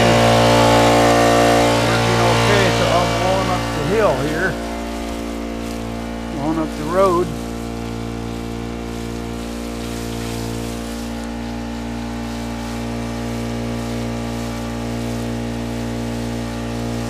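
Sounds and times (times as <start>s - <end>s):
small water pump engine running: 0.0s - 17.0s
water spraying from hose: 0.0s - 17.0s.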